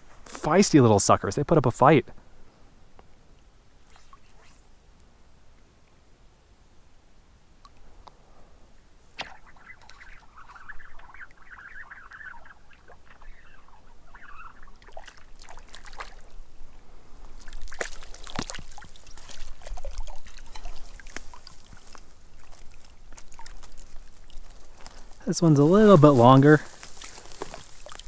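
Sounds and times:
fish splashing in water: 0:09.2 - 0:16.4, 0:17.4 - 0:24.8, 0:26.8 - 0:28.0.

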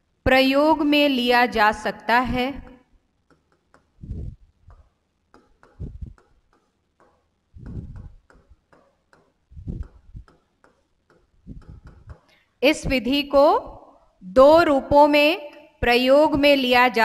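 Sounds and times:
marker scratching on whiteboard: 0:03.3 - 0:12.3
marker knocking on board: 0:05.3 - 0:12.3.

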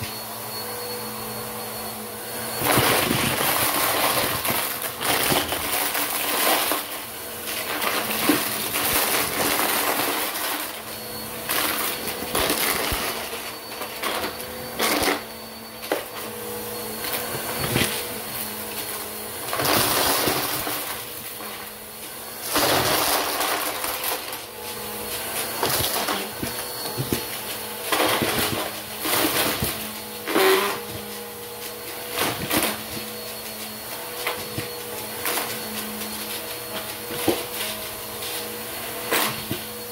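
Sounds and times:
upright vacuum cleaner running: 0:00.0 - 0:39.9
plastic pieces clattering in vacuum: 0:02.6 - 0:15.3, 0:19.4 - 0:21.6, 0:22.4 - 0:24.6, 0:25.4 - 0:31.1, 0:31.8 - 0:33.2.

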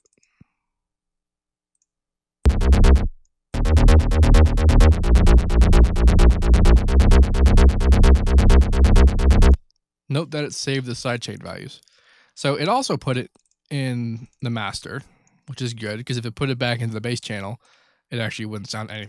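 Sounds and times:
electronic dance music synth bass: 0:02.5 - 0:09.6.

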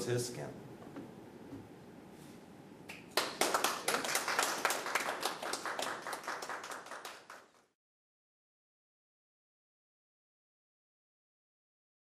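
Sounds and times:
hands clapping: 0:02.9 - 0:07.7.

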